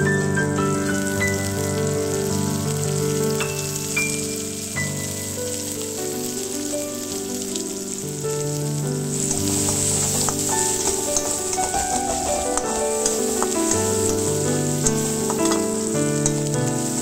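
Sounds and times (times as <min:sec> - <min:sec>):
background music of held notes: 0:00.0 - 0:17.0
onions sizzling in hot oil: 0:00.0 - 0:17.0
spatula stirring in a wok: 0:09.1 - 0:17.0.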